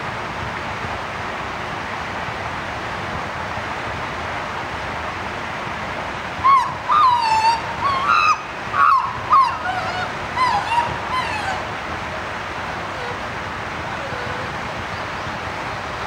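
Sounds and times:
high-pitched animal calls: 6.4s - 11.7s, 12.9s - 13.2s, 13.9s - 14.6s.

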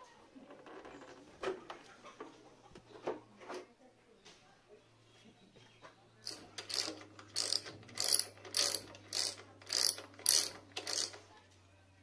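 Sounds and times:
ratchet wrench clicking: 6.2s - 11.2s.

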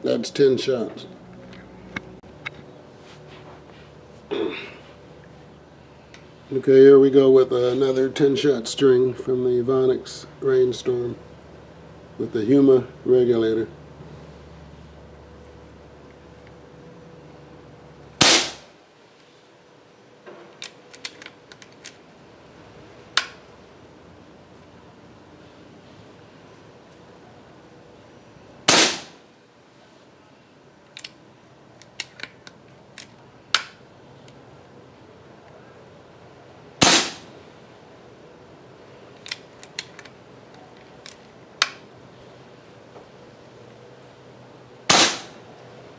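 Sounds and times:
air rifle shot: 18.2s - 18.7s, 28.7s - 29.2s, 36.8s - 37.3s, 44.9s - 45.4s
sharp snap: 18.2s - 18.7s, 28.7s - 29.2s, 33.5s - 33.8s, 36.8s - 37.3s, 44.9s - 45.4s
light mechanical clicks: 30.8s - 31.2s, 31.8s - 34.4s.

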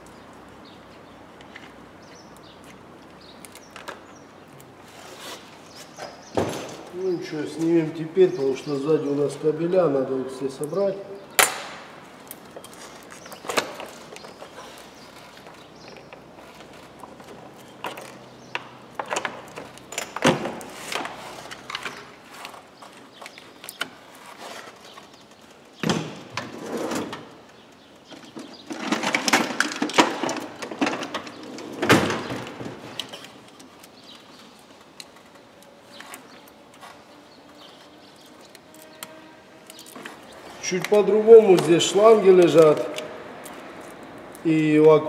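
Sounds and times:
plastic rattles: 28.1s - 35.4s.

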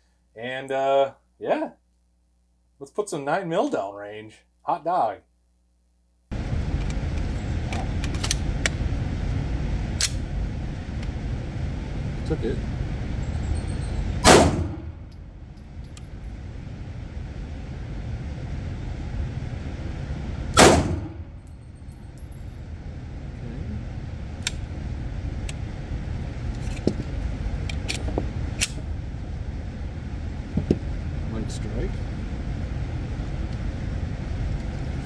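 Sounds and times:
low background noise: 0.0s - 35.0s
pistol shots echoing indoors: 14.2s - 14.9s, 20.6s - 21.2s.

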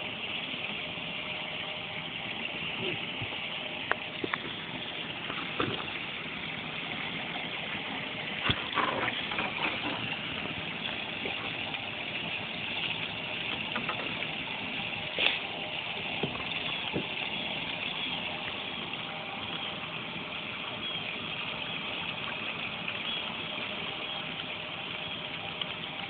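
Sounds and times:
knocks and clatter: 13.5s - 14.4s.

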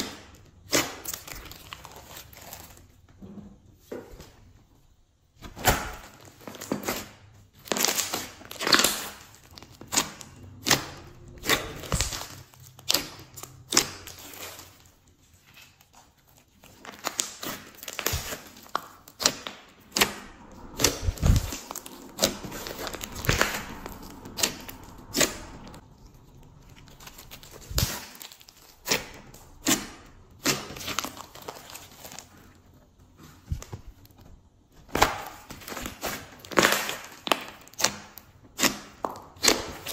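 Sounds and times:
slime squishing with wet pops: 26.6s - 39.9s.

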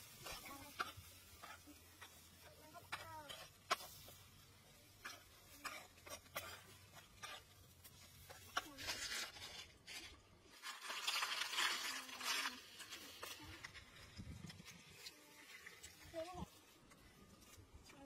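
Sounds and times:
snail shells rattling: 8.9s - 16.1s.

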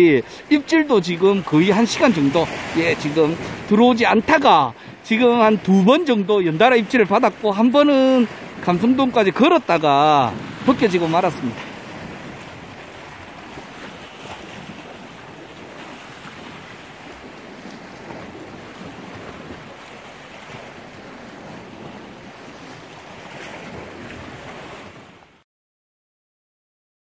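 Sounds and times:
surf washing against rocks: 0.0s - 25.4s
wind on microphone: 10.1s - 25.2s.

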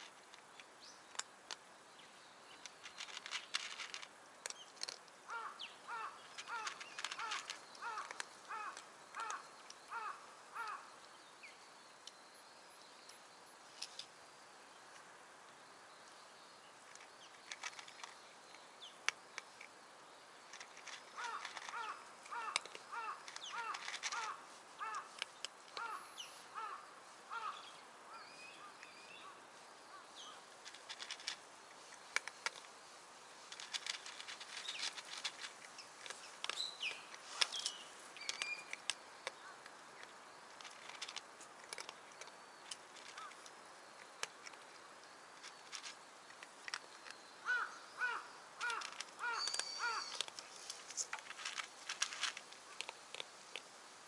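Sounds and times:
harsh repeated bird calls: 5.3s - 11.0s, 20.9s - 30.4s, 47.4s - 50.3s
thin high bird chirps: 35.7s - 40.1s, 46.9s - 51.1s.

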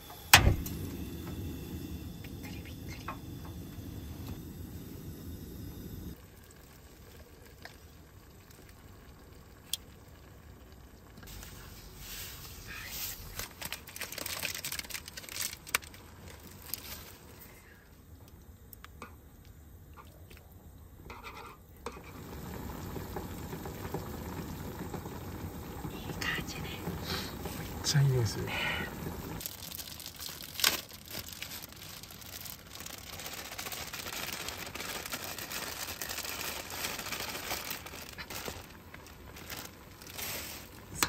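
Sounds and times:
bubbling simmer: 0.8s - 12.6s, 21.7s - 30.2s
food sizzling in frying pan: 21.9s - 30.2s.

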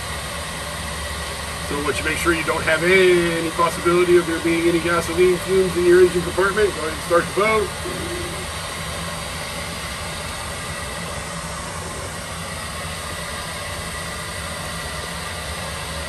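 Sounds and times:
bilge blower fan hiss: 0.0s - 16.0s.

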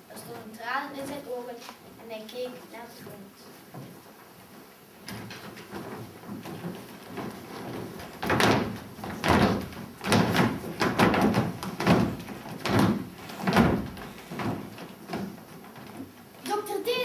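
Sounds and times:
children stamping on wooden stage: 3.8s - 16.6s.

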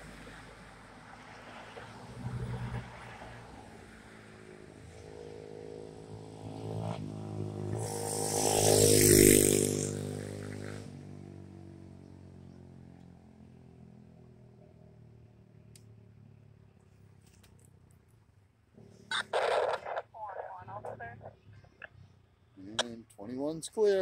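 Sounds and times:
vehicle passing by: 0.0s - 17.2s.

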